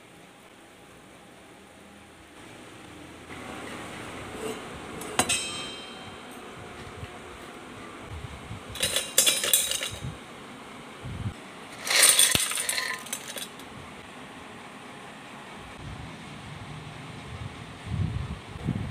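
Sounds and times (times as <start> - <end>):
ringing metal clink: 4.4 - 6.5, 8.8 - 10.1, 11.8 - 13.6
snacks rattling in metal container: 11.8 - 13.6.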